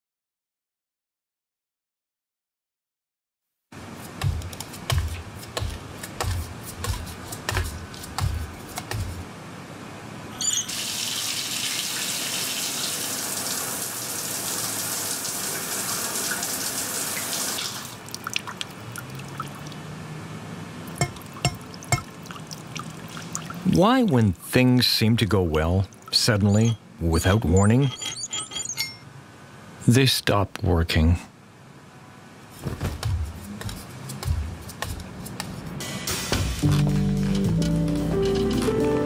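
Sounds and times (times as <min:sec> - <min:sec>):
squeak: 0:10.4 - 0:10.8, 0:26.4 - 0:29.1.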